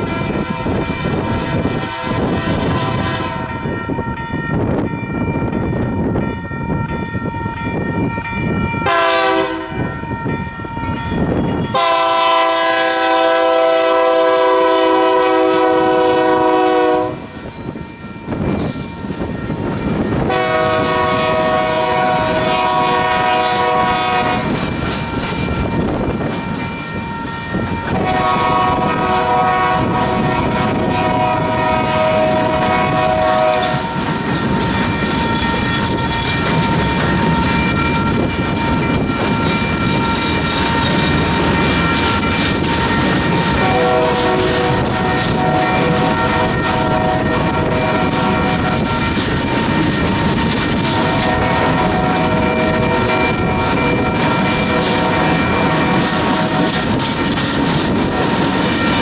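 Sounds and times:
locomotive horn blasts: 0.0 - 3.6, 8.8 - 9.9, 11.5 - 17.4, 20.2 - 24.6, 27.8 - 34.0, 42.8 - 49.2, 50.7 - 57.0
train wheels rumbling on rails: 0.0 - 59.0.

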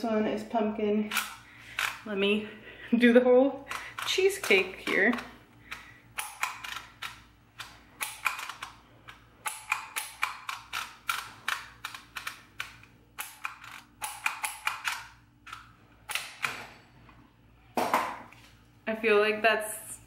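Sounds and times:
label maker clicking: 9.4 - 16.6.

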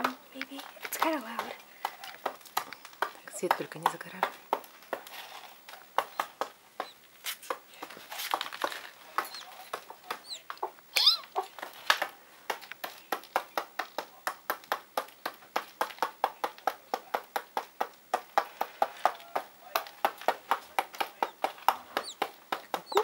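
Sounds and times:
chick clicking calls: 5.9 - 7.0, 9.1 - 23.0
chick high chirps: 9.2 - 11.5, 22.0 - 23.0.

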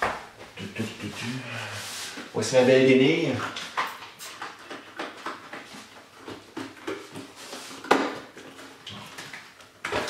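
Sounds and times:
rag wiping a whiteboard: 0.8 - 3.2.

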